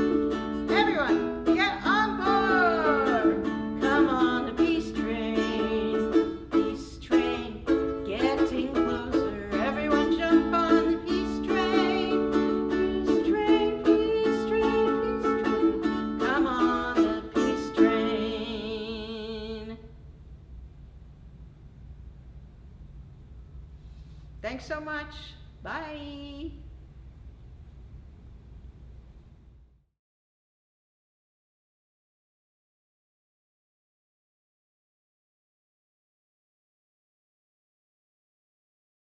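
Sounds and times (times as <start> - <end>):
ukulele strumming: 0.0 - 19.8
woman singing: 0.0 - 19.9.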